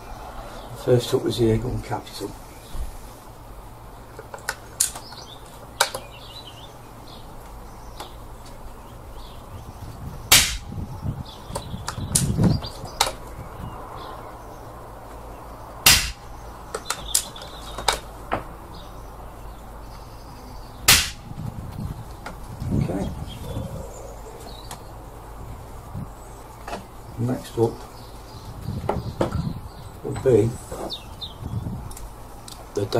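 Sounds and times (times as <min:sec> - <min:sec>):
silenced air rifle shots: 0:10.3 - 0:10.7, 0:15.8 - 0:17.3, 0:20.8 - 0:21.3.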